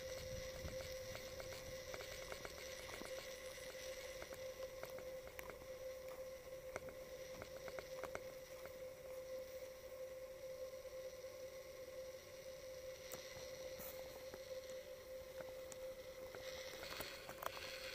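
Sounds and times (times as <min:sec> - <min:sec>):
faint clicks: 0:00.0 - 0:09.2
steady hum: 0:00.0 - 0:17.9.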